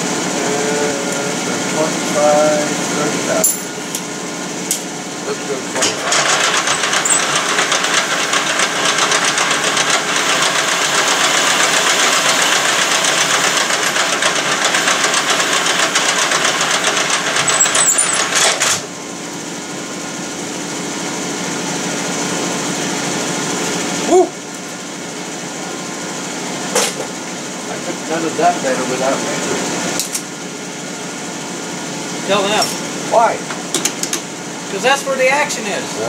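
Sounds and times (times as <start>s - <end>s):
lathe running with low hum: 0.0s - 36.0s
metal lathe cutting with chatter: 5.3s - 18.8s
short squeak: 17.5s - 18.2s.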